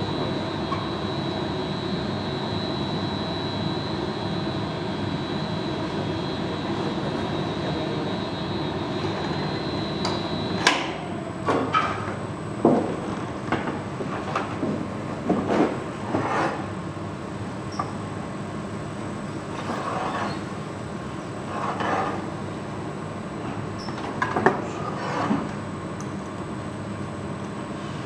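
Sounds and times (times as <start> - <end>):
thin high whine: 0.0 - 11.6
gas furnace rushing: 0.0 - 11.7.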